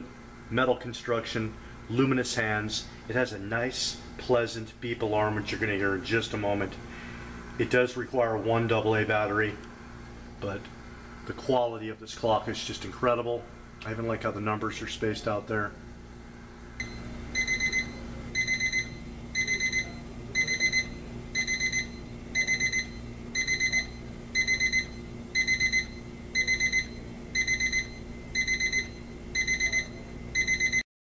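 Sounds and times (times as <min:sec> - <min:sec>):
alarm clock beeping: 0:16.8 - 0:30.8.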